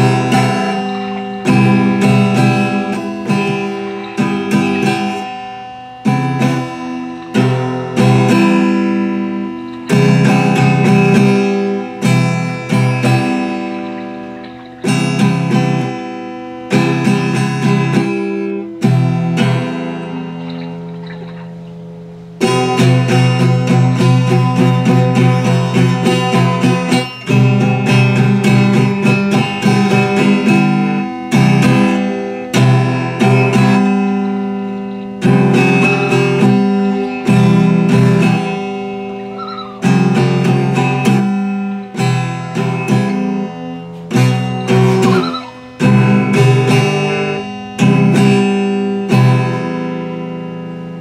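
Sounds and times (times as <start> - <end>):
acoustic guitar strumming: 0.0 - 51.0.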